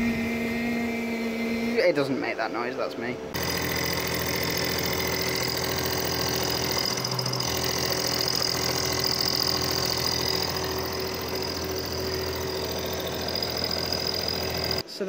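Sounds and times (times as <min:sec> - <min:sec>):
milling machine cutting metal: 0:03.4 - 0:14.8.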